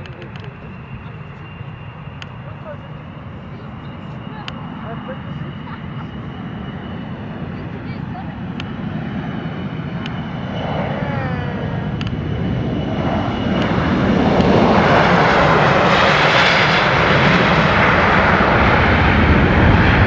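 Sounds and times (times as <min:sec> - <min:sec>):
jet engines roaring at takeoff: 0:00.0 - 0:20.0.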